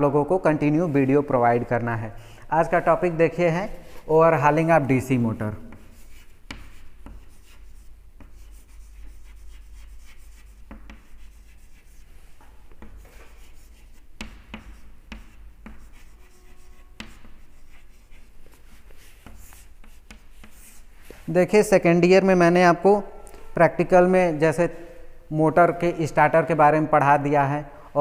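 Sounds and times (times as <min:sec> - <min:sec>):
chalk scratching on chalkboard: 0:05.6 - 0:21.3.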